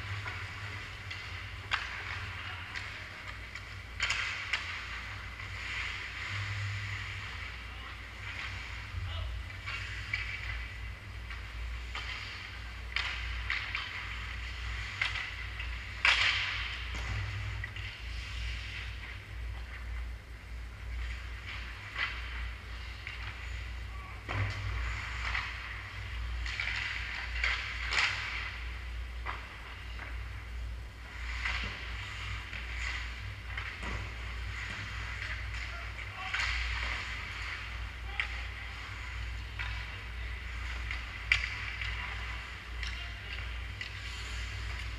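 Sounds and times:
skate blades scraping ice: 0:00.0 - 0:20.0, 0:24.4 - 0:44.9
hockey sticks and puck clacking: 0:00.0 - 0:44.9
steady low hum: 0:00.0 - 0:44.9.

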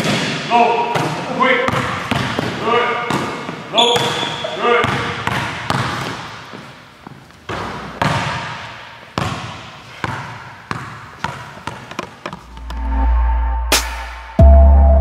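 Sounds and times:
basketball bouncing with echo: 0:00.0 - 0:12.5
low background music: 0:12.6 - 0:15.0.

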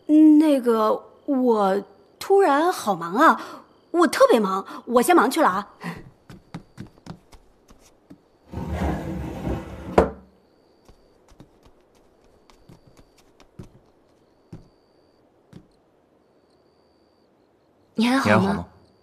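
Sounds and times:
footsteps on wooden floor: 0:06.0 - 0:08.2, 0:10.9 - 0:14.7
faint taps: 0:15.5 - 0:15.8.

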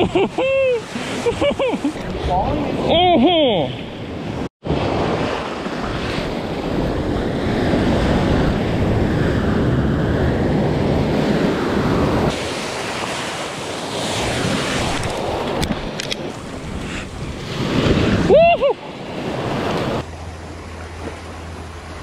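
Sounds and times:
waves breaking over rocks: 0:12.2 - 0:22.0.

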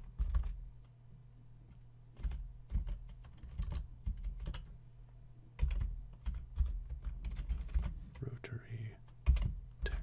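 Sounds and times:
keyboard typing: 0:00.0 - 0:00.9, 0:02.2 - 0:04.8, 0:05.6 - 0:08.4, 0:09.0 - 0:10.0
low steady hum: 0:00.0 - 0:10.0.

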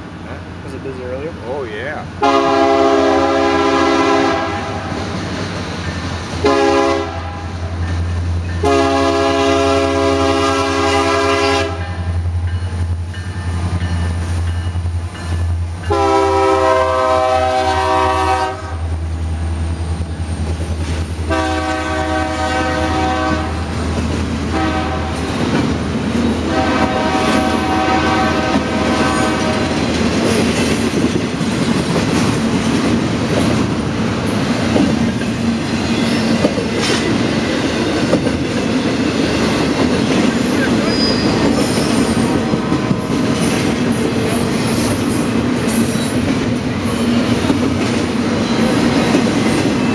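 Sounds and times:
train air horn blasts: 0:02.2 - 0:05.0, 0:06.4 - 0:07.6, 0:08.6 - 0:12.1, 0:15.8 - 0:18.9, 0:21.3 - 0:23.8, 0:24.5 - 0:25.4, 0:26.4 - 0:29.8
train wheels clattering on rails: 0:05.0 - 0:06.7, 0:07.6 - 0:09.8, 0:11.9 - 0:16.6, 0:19.7 - 0:21.8, 0:23.3 - 0:49.9.

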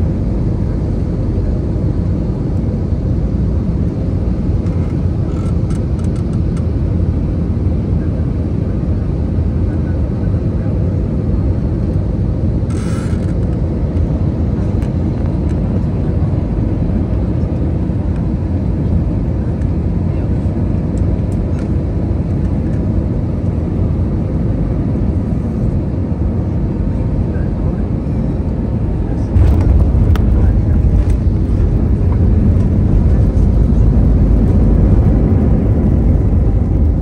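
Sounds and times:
jet engines rumbling: 0:00.0 - 0:37.0
rushing airflow: 0:28.8 - 0:37.0.

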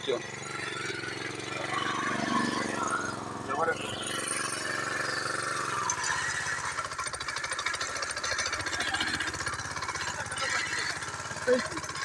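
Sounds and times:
small petrol engine running: 0:00.0 - 0:12.0.

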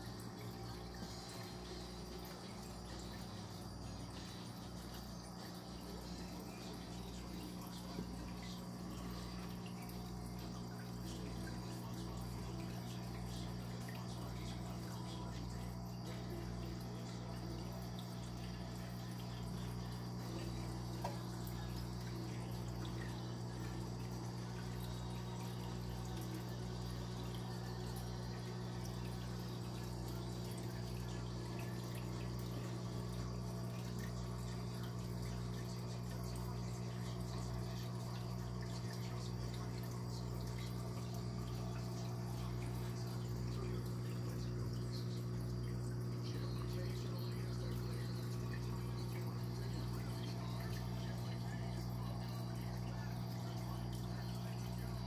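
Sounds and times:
low electrical hum: 0:00.0 - 0:55.0
water bubbling and trickling: 0:00.0 - 0:55.0.

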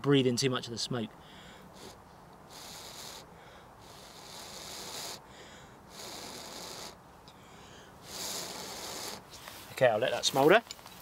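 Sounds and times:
person blowing softly: 0:01.3 - 0:09.7.

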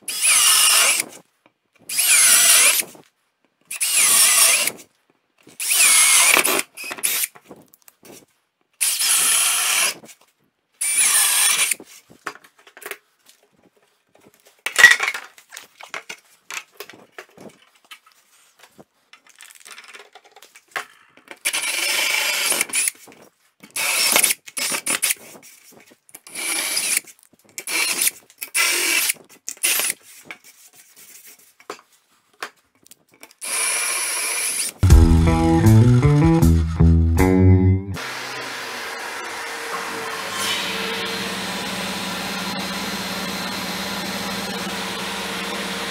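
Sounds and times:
cordless drill boring through wood: 0:00.0 - 0:01.0, 0:01.9 - 0:02.8, 0:03.7 - 0:04.7, 0:05.6 - 0:07.3, 0:08.8 - 0:10.0, 0:10.8 - 0:11.8, 0:21.4 - 0:22.9, 0:26.3 - 0:27.0, 0:27.7 - 0:29.9, 0:33.4 - 0:34.8, 0:38.0 - 0:45.9.

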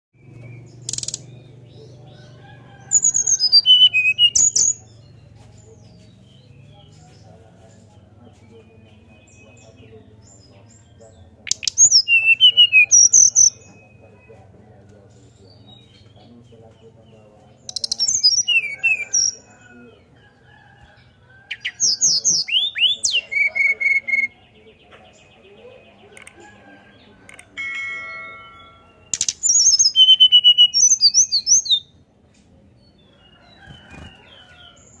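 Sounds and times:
bird whistled song: 0:03.0 - 0:04.8, 0:11.5 - 0:14.3, 0:17.7 - 0:19.3, 0:21.5 - 0:24.4, 0:29.1 - 0:32.0.

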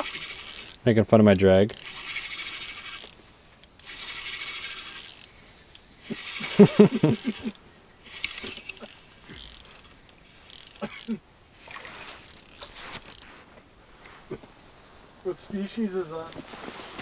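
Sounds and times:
fishing reel whirring and clicking: 0:00.0 - 0:00.8, 0:01.7 - 0:13.2.

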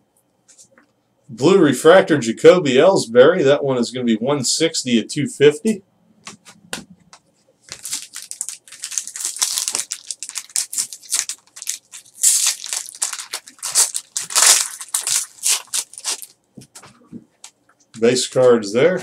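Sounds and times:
foil wrapper tearing and crinkling: 0:07.7 - 0:16.4.

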